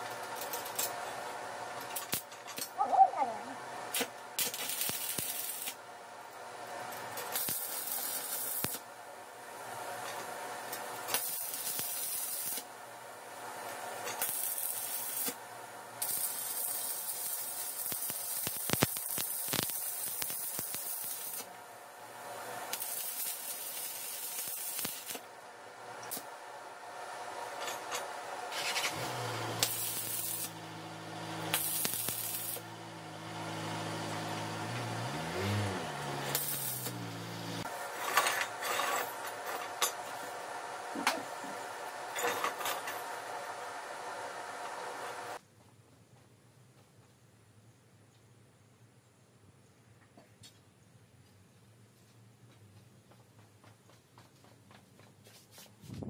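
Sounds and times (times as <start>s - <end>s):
welding arc crackling: 1.7s - 2.7s, 3.8s - 26.5s, 27.1s - 45.4s.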